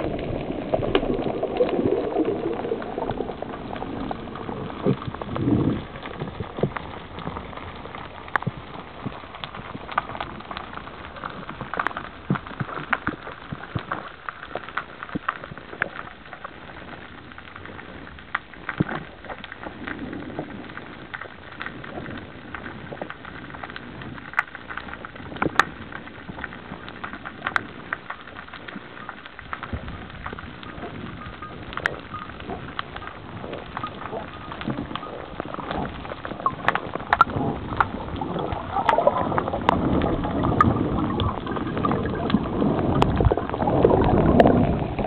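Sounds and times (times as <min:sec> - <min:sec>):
sharp clicks and crackles: 0:00.0 - 0:45.0.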